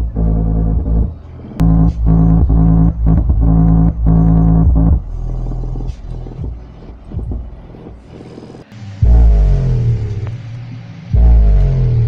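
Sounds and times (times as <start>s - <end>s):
bass note sliding down: 0.0s - 6.5s, 9.0s - 10.5s
deep heavy bass: 0.0s - 12.0s.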